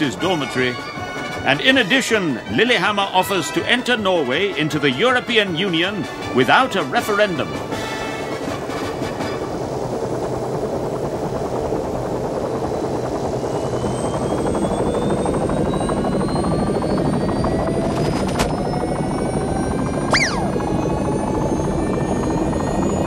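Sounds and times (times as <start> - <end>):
helicopter churning: 0.0 - 23.0
short high squeal: 20.1 - 20.6.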